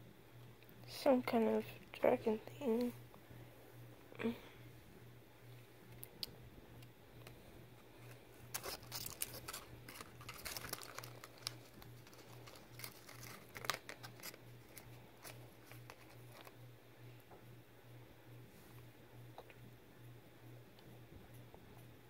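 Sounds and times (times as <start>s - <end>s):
foil wrapper crinkling: 7.8s - 16.6s.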